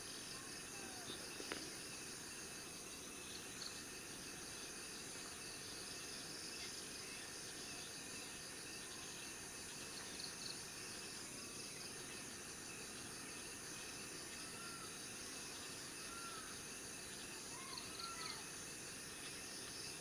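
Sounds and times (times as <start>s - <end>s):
insects chorus: 0.0s - 20.0s
low background hiss: 0.0s - 20.0s
faint whistled call: 17.4s - 18.5s.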